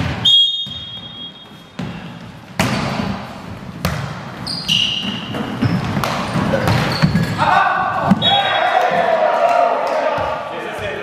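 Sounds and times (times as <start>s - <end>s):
volleyball struck by hand: 2.6s - 3.2s, 3.8s - 4.3s.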